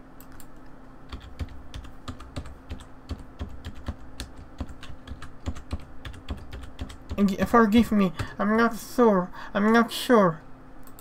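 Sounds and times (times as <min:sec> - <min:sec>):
typing on computer keyboard: 0:01.1 - 0:07.2.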